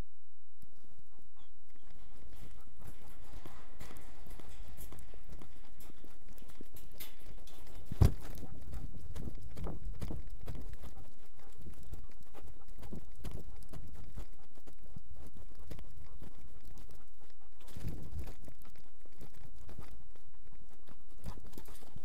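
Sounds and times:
dog paw steps: 1.7s - 17.0s
rubbing and knocking on microphone: 7.7s - 10.7s.

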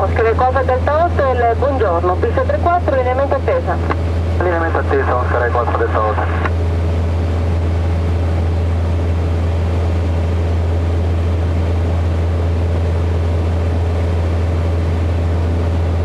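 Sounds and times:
airplane engine drone in cockpit: 0.0s - 16.0s.

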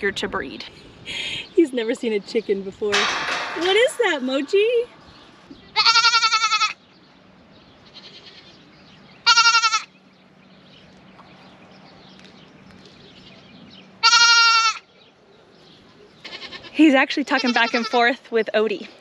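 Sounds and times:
goat kid bleating: 5.7s - 6.8s, 7.8s - 8.6s, 9.2s - 9.9s, 14.0s - 14.9s, 16.2s - 18.2s.

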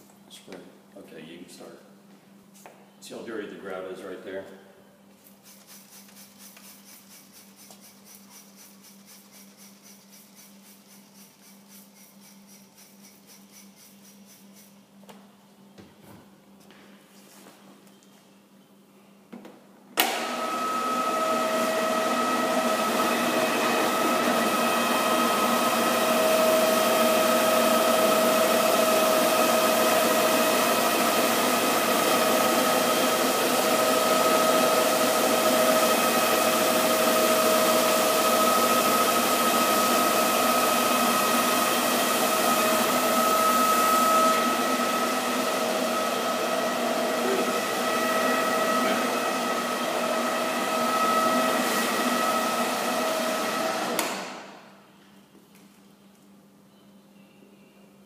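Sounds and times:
floor scrubber motor whine: 20.0s - 54.5s.

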